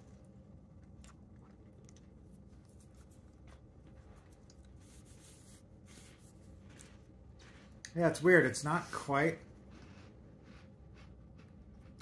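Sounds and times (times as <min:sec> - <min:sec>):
low room hum: 0:00.0 - 0:12.0
chewing cracker: 0:00.1 - 0:04.8.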